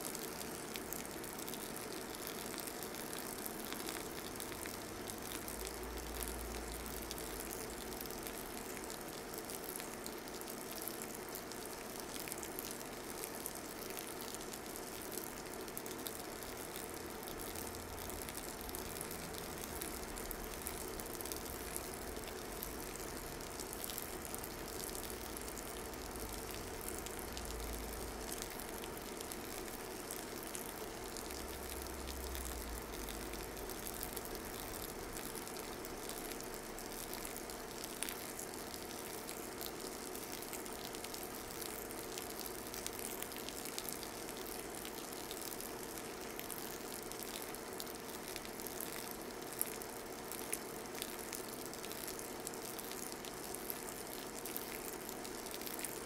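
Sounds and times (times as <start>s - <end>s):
water trickling onto coffee grounds: 0.0s - 56.0s.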